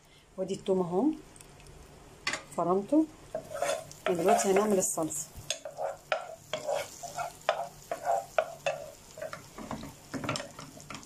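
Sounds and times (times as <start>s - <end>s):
butter sizzling: 3.2s - 11.0s
wooden spoon scraping a pot: 3.3s - 4.9s, 5.5s - 11.0s.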